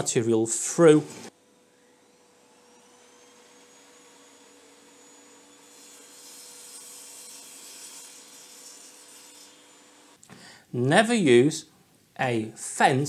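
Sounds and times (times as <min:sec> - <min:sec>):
table saw humming: 0:00.8 - 0:10.2
saw blade cutting chipboard: 0:01.0 - 0:10.2.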